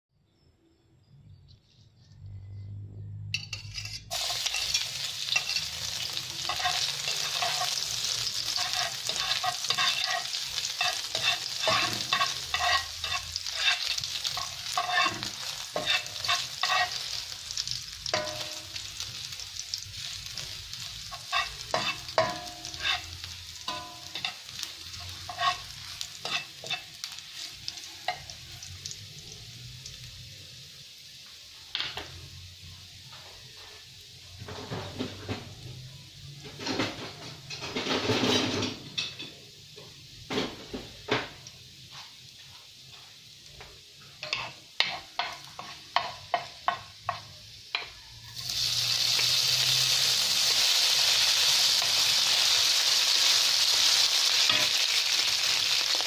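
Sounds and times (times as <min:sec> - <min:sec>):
spatula scraping pan: 0:03.4 - 0:18.6, 0:21.0 - 0:28.4
garlic sizzling in oil: 0:03.5 - 0:56.0.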